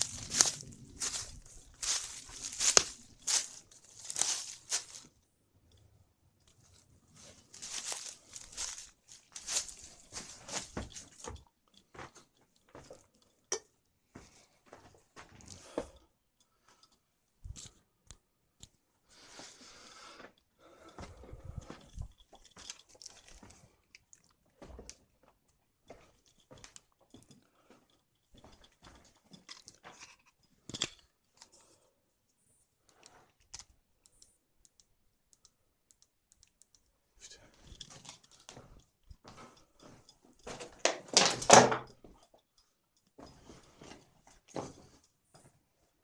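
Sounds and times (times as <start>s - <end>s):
footsteps crunching on gravel: 0.0s - 5.1s, 7.4s - 11.3s.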